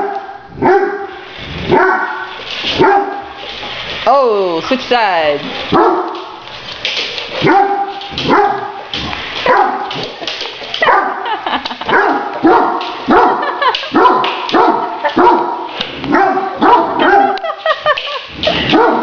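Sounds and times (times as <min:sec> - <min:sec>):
dog barking: 0:00.0 - 0:03.4, 0:05.7 - 0:06.2, 0:07.4 - 0:08.8, 0:09.4 - 0:10.0, 0:10.8 - 0:17.4, 0:18.6 - 0:19.0.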